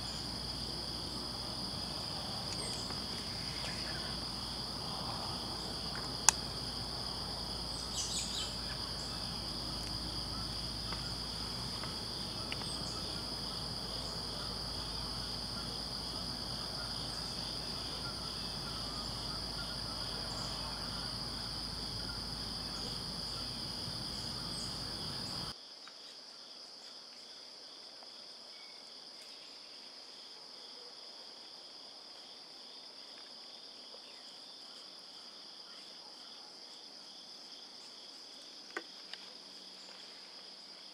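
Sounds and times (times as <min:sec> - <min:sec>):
crickets and insects trilling: 0:00.0 - 0:25.7.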